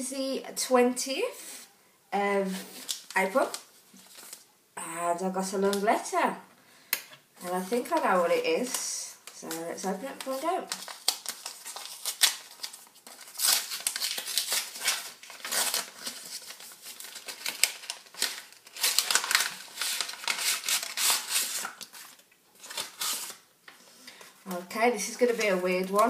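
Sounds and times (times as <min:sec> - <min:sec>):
paper rustling and crinkling: 0:02.4 - 0:04.5, 0:07.5 - 0:26.0.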